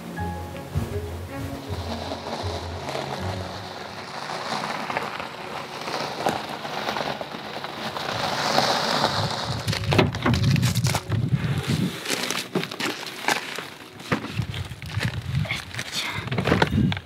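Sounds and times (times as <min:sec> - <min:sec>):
steady rushing rain-like noise: 0:00.0 - 0:11.1
faint background music: 0:00.0 - 0:17.0.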